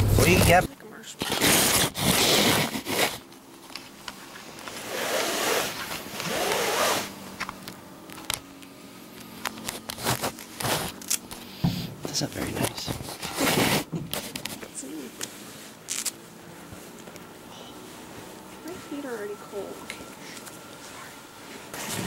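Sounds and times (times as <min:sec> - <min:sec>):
zipper: 0:01.2 - 0:03.3, 0:04.7 - 0:07.2, 0:09.7 - 0:11.2, 0:13.0 - 0:14.6.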